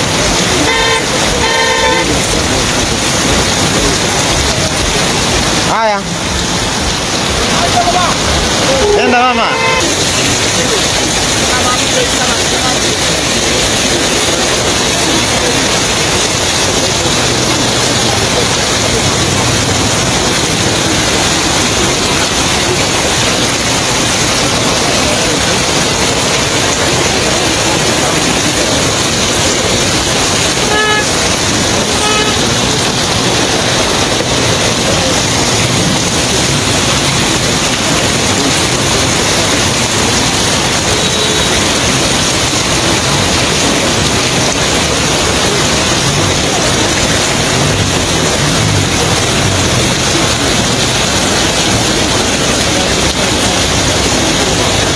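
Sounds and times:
heavy rain on flooded street: 0.0 - 54.9
vehicle horn toot: 0.6 - 2.3, 8.8 - 10.0, 30.6 - 31.2, 31.9 - 32.5.

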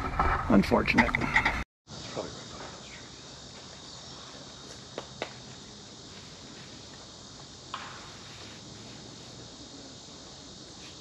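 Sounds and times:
insects chirring: 0.5 - 11.0.

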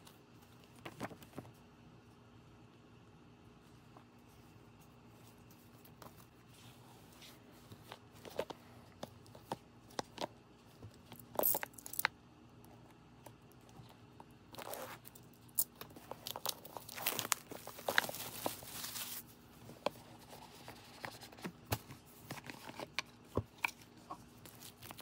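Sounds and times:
plastic wrap crinkling and tearing: 16.0 - 19.3.

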